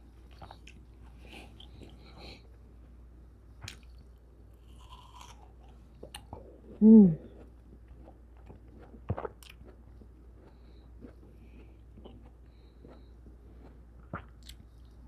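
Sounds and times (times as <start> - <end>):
wet chewing and mouth smacks: 3.6 - 4.0, 7.4 - 15.0
person humming mm: 6.8 - 7.4.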